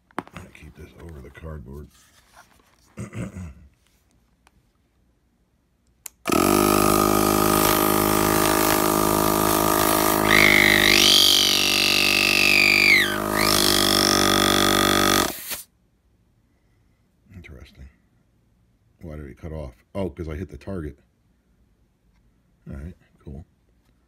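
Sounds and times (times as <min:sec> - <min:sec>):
air compressor droning: 0:06.3 - 0:15.6.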